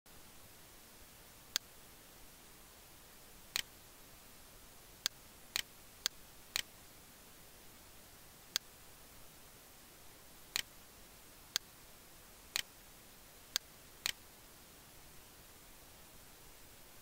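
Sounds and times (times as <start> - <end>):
computer mouse clicking: 3.5 - 3.7, 5.0 - 6.7, 10.5 - 10.7, 12.5 - 12.7.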